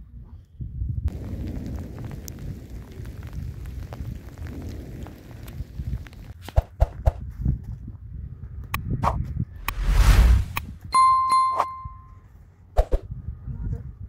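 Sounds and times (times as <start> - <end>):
low rumble: 9.0 - 10.7.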